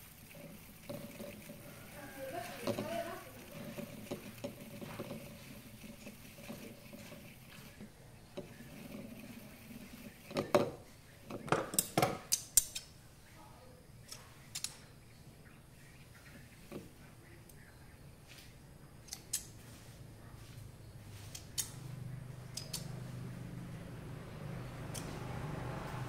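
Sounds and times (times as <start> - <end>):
sharp metallic clicks and clinks: 11.4 - 13.0, 14.0 - 14.8, 19.0 - 19.6, 21.3 - 21.9, 22.5 - 23.0, 24.8 - 25.3
soft fiddling noises: 15.7 - 26.0.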